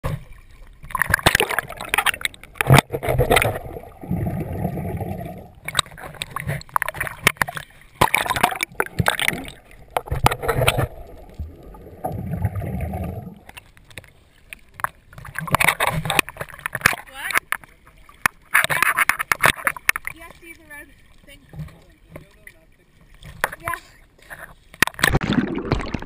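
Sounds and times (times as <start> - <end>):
swimmer kicking bubbles: 0.0 - 13.6, 24.8 - 26.0
water sloshing and splashing: 0.0 - 26.0.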